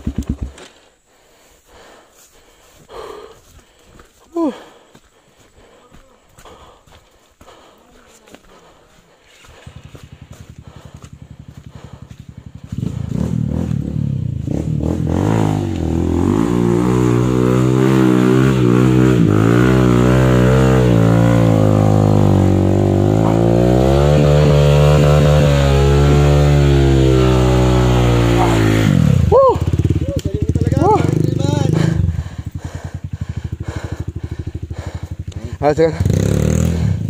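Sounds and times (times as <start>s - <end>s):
dirt bike engine revving: 0.0s - 0.6s, 9.4s - 37.0s.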